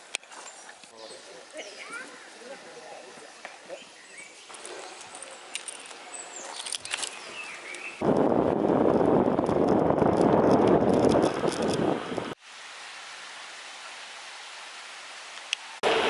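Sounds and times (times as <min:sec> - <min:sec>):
small birds chirping: 0:00.3 - 0:08.0
bicycle tyre noise: 0:04.5 - 0:12.4
wind rushing on microphone: 0:08.0 - 0:12.4.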